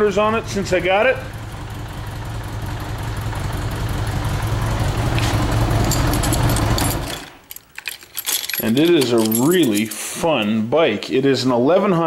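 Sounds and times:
motorcycle engine idling: 0.0 - 7.1.

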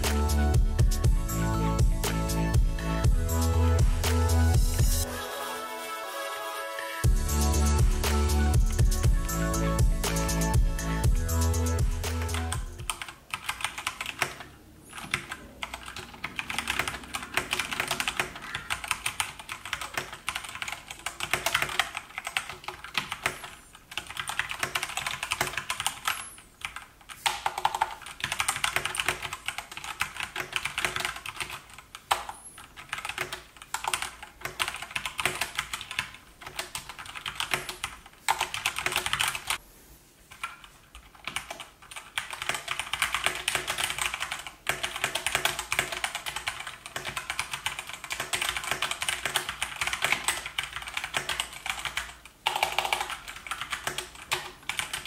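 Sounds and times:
mechanical keyboard typing: 11.7 - 39.6, 40.3 - 55.0.

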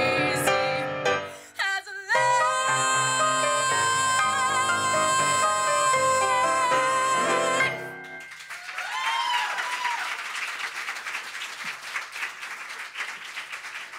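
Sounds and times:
musical accompaniment: 0.0 - 1.4, 2.2 - 8.6
woman singing held note: 1.5 - 7.8
audience applause and cheering: 2.6 - 13.9
whoops: 3.0 - 10.2.

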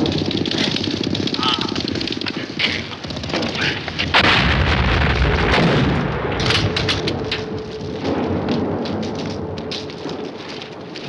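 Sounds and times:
artillery shell explosion: 3.1 - 9.4
gunfire cracks: 3.3 - 7.4.

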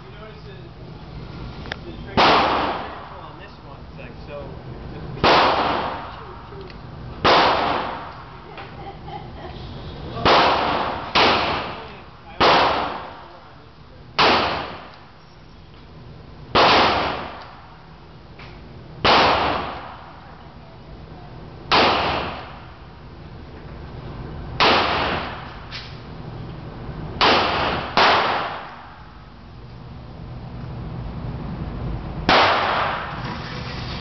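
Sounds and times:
revolver shots echoing indoors: 2.1 - 3.2, 5.2 - 6.3, 7.2 - 8.4, 10.2 - 13.4, 14.2 - 15.0, 16.5 - 17.8, 19.0 - 20.3, 21.7 - 22.7, 24.6 - 26.1, 27.2 - 29.1, 32.2 - 33.4.

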